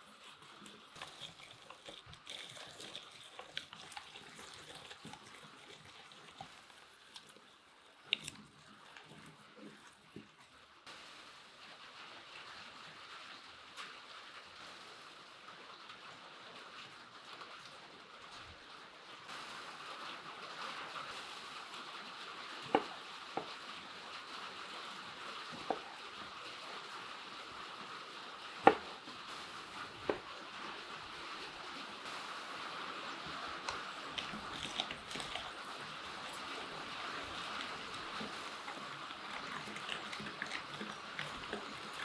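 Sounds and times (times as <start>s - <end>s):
knife chopping on wooden board: 28.6s - 28.9s.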